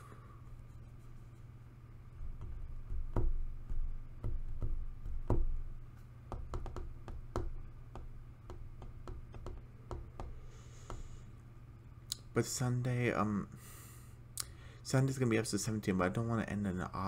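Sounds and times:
low room hum: 0.0 - 17.0
hands tapping on a desk: 2.2 - 11.1.

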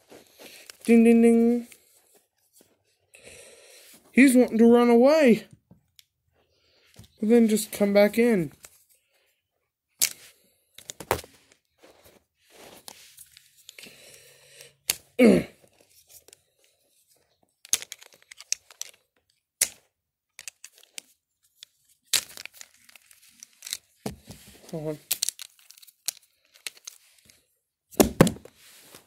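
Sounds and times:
clothing rustling: 11.0 - 13.7, 28.4 - 29.0
plastic action figures knocking: 28.0 - 28.5.

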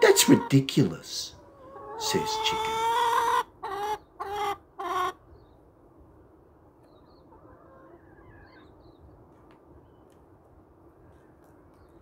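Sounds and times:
chicken squawking: 0.0 - 5.2.

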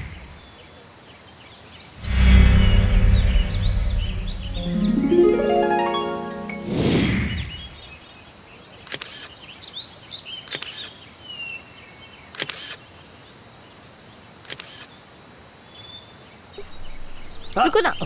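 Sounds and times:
phone camera shutter clicks: 8.9 - 9.3, 10.5 - 10.9, 12.4 - 12.8, 14.5 - 14.9
birds chirping faintly: 15.7 - 18.0.

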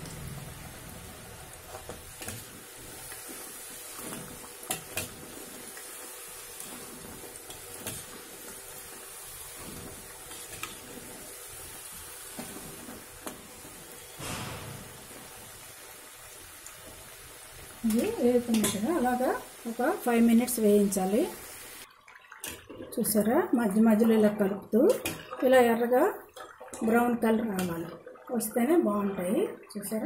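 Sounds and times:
food sizzling in hot oil: 0.0 - 22.6.

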